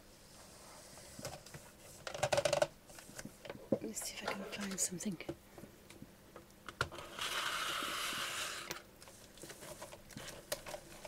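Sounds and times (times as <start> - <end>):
sliding rustle of packaging: 7.0 - 11.0.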